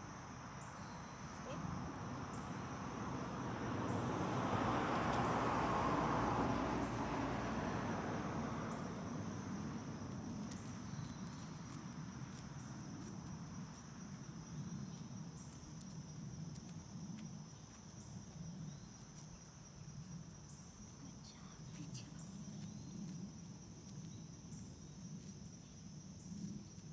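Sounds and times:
insects droning: 0.0 - 26.9
low background noise: 9.4 - 26.9.

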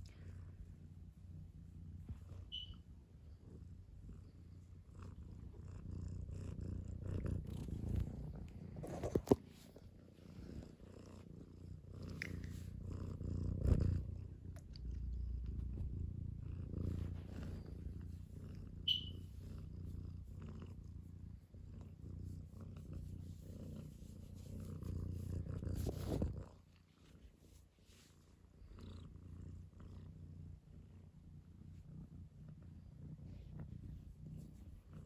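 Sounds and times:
cat purring: 0.0 - 35.0
brief high squeak: 2.5 - 2.8, 18.9 - 19.2.

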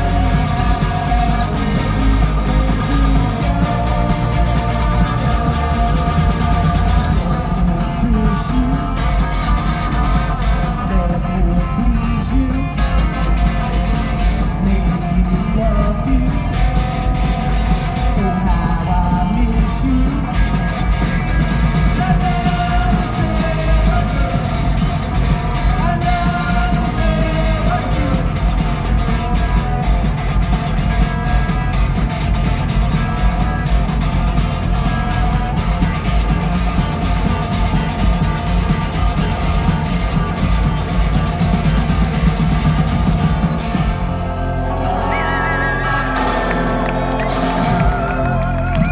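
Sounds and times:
person singing: 0.0 - 20.7, 21.7 - 30.1, 44.8 - 48.9
drums: 0.0 - 48.9
electric guitars: 0.0 - 48.9.

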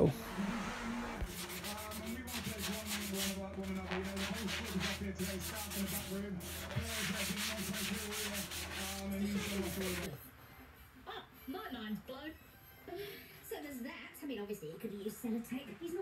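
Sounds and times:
steady low hum: 0.0 - 10.1
sanding sponge scratching wood: 0.4 - 10.1.

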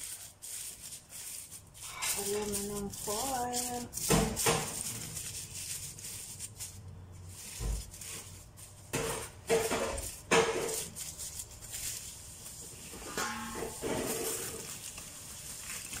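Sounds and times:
aluminium foil crinkling: 0.0 - 16.0.

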